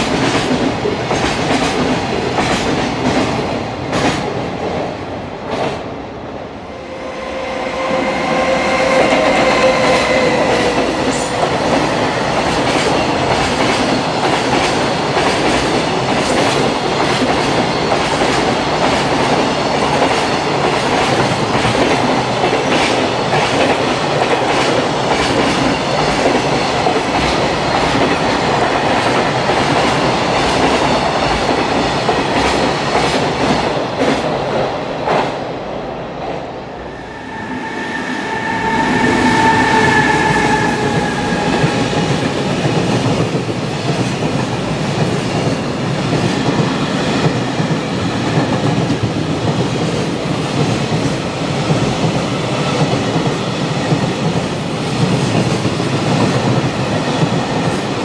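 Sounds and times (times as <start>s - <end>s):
freight train wheels rumbling: 0.0s - 58.0s
held tone with overtones: 6.6s - 11.6s, 36.6s - 43.1s.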